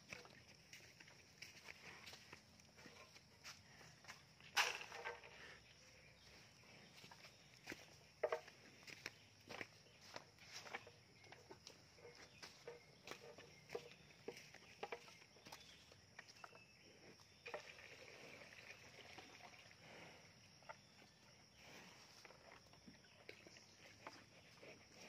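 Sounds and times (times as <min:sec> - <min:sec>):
cow eating crunches: 0:00.0 - 0:16.6.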